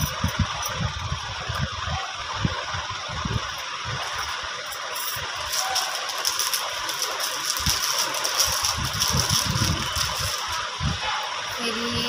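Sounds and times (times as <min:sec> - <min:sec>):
small items clinking and rattling: 0:04.0 - 0:10.8.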